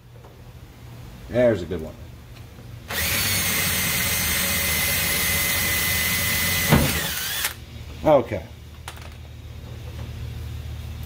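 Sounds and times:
cordless drill whining: 2.9 - 7.6.

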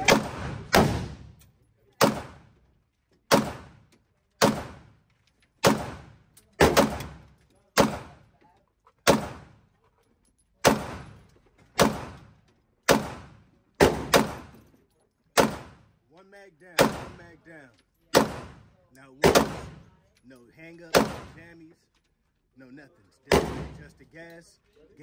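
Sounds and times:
gunshots echoing indoors: 0.0 - 1.3, 18.1 - 19.9, 20.9 - 21.4, 23.3 - 24.0.

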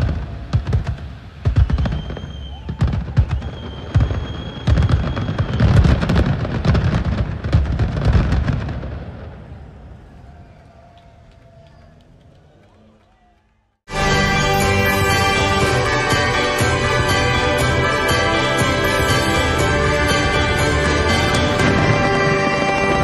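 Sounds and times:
fireworks crackling: 0.0 - 9.6, 13.9 - 23.0
fireworks booming: 0.0 - 10.6, 13.9 - 23.0
high whistle: 1.5 - 5.9.

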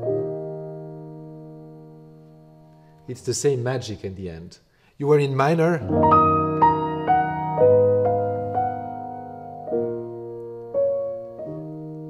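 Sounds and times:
soft slow piano chords: 0.0 - 3.1, 5.8 - 12.0.

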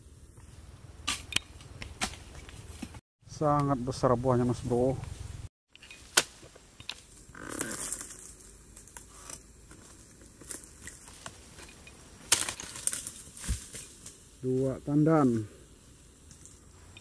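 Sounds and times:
chisel knocking and tearing stalks: 12.2 - 14.1.

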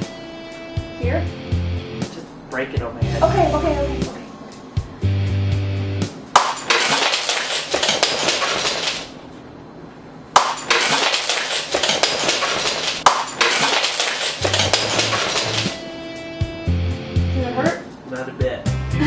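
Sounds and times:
mug smashing: 6.4 - 9.2, 10.4 - 15.8.

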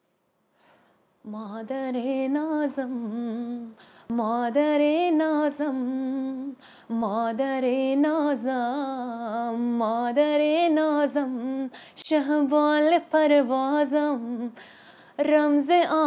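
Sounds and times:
short breaths: 0.5 - 1.1, 3.8 - 4.1, 6.6 - 6.9, 14.6 - 15.2
woman singing unaccompanied: 1.2 - 14.6, 15.2 - 16.0.

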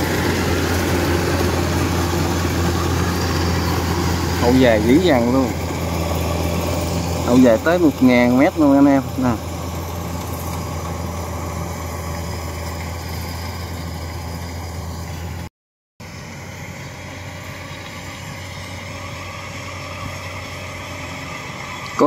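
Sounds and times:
combine harvester diesel engine: 0.0 - 22.0.

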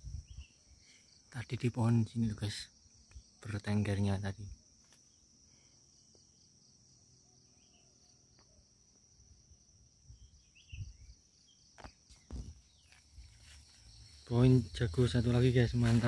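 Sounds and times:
crickets chirping: 0.0 - 16.0
footsteps in dry leaves: 12.2 - 14.3, 15.3 - 16.0.

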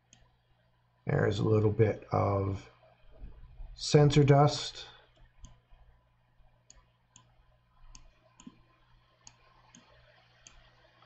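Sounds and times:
computer mouse clicks: 0.1 - 0.3, 5.1 - 5.8, 6.6 - 10.9.

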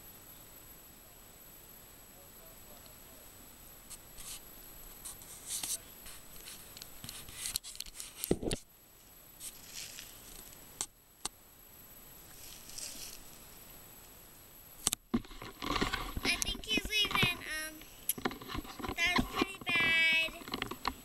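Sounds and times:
hand scratching on camera: 3.9 - 4.4, 5.0 - 8.6, 9.4 - 10.3, 12.3 - 13.3, 15.2 - 20.9
camera bump: 14.9 - 21.0.

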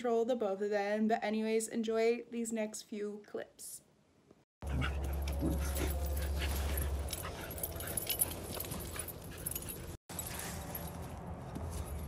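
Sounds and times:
dogs whimpering and yipping: 4.6 - 10.0
dogs scuffling and rustling: 4.6 - 12.0
low hum: 4.6 - 12.0.

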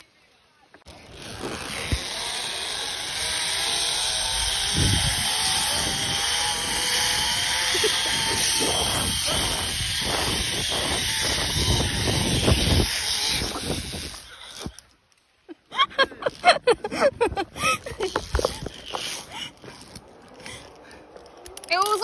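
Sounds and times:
zip-line pulleys whining: 0.9 - 15.0, 15.8 - 22.0
wind rushing over microphone: 4.2 - 14.7
wind buffeting thumps: 4.3 - 14.8, 17.0 - 20.0.

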